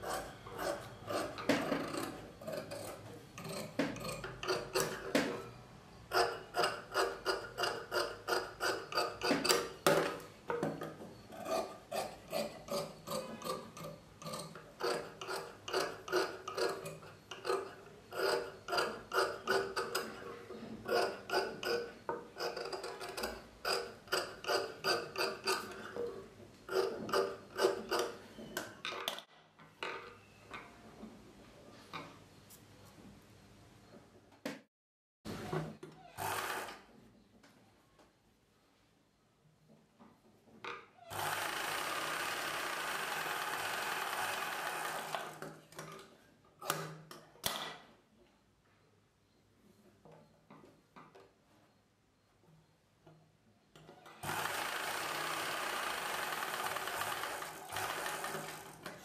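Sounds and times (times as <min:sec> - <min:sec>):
sewing machine clacking: 0:54.2 - 0:59.0.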